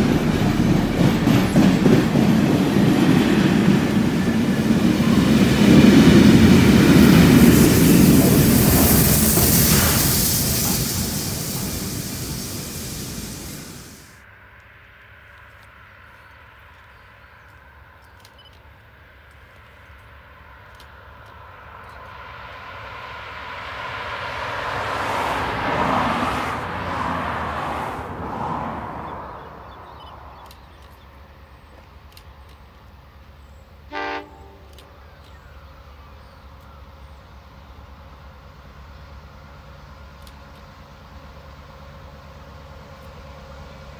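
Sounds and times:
passing road vehicle: 19.1s - 31.7s
distant train horn toot: 33.9s - 34.9s.

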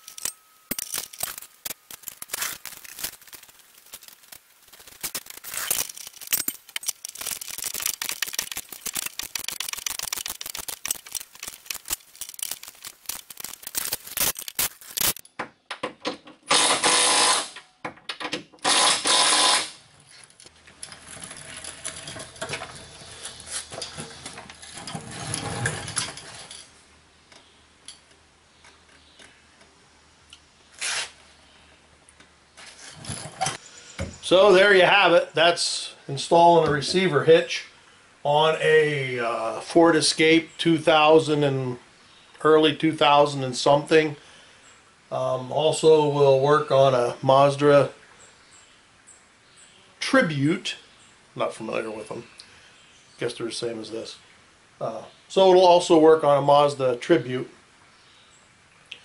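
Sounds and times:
rapid irregular clicking: 0.0s - 15.2s
impact wrench bursts: 16.5s - 17.6s, 18.6s - 19.8s.

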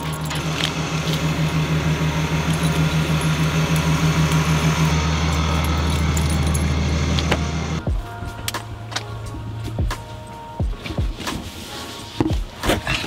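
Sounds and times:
car engine idling: 0.0s - 8.1s.

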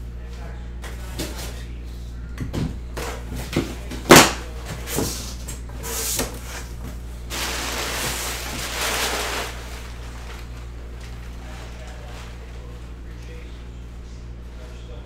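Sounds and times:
scraping rustle: 4.8s - 12.8s.

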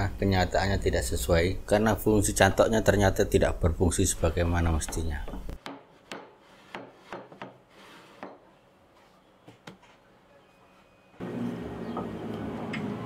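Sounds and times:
wood-on-wood knocks and scrapes: 4.8s - 8.6s.

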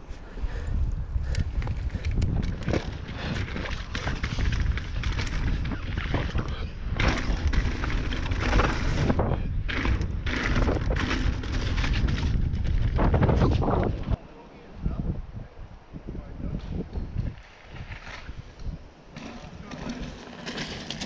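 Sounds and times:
wind buffeting microphone: 0.0s - 20.2s
bike knocking and rattling: 1.2s - 14.2s, 19.1s - 21.0s.

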